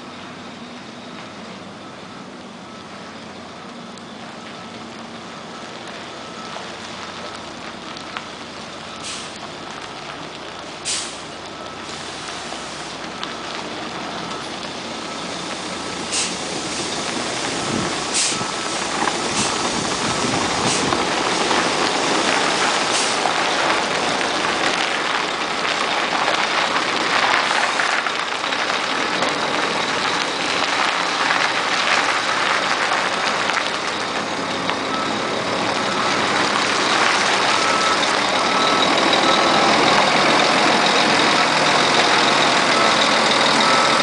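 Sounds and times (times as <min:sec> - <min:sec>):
faint reversing beeper: 0:00.0 - 0:10.0, 0:10.8 - 0:24.9, 0:27.4 - 0:44.0
truck diesel engine and tyres: 0:00.0 - 0:44.0
air brake hisses: 0:09.0 - 0:09.4, 0:10.8 - 0:11.3, 0:16.1 - 0:16.4, 0:18.1 - 0:18.4.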